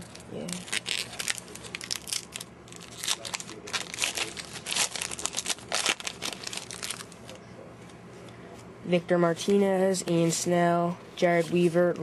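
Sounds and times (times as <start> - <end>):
card pack crinkling: 0.0 - 7.3.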